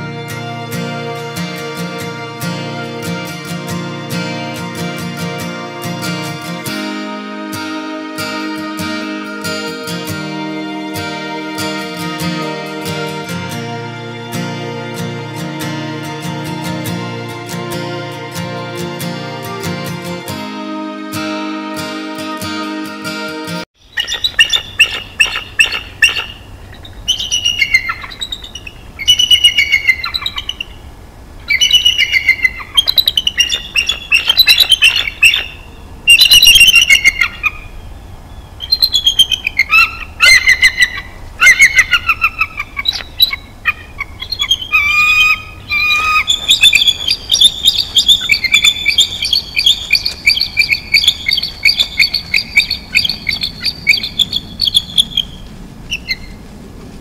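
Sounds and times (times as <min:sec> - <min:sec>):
eagles chittering calls: 0:23.8 - 0:30.8, 0:31.5 - 0:56.4.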